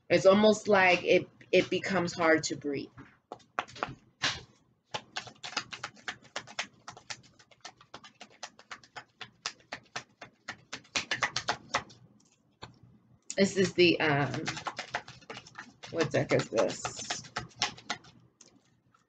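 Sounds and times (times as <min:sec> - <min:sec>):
cards being shuffled: 0:03.3 - 0:12.8, 0:13.5 - 0:19.0.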